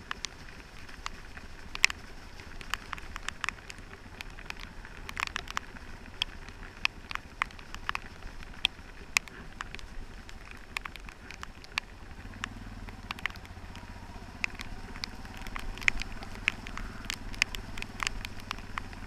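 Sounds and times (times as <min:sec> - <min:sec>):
dirt bike rumble: 0:00.0 - 0:19.0
sharp clicks and ticks: 0:00.0 - 0:19.0.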